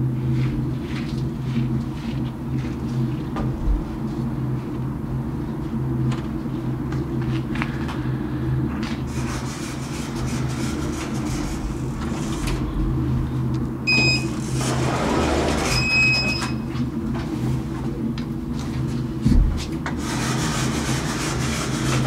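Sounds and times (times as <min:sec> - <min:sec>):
steady low hum: 0:00.0 - 0:22.0
electronic beep: 0:13.9 - 0:14.3
elevator doors sliding open: 0:13.9 - 0:16.7.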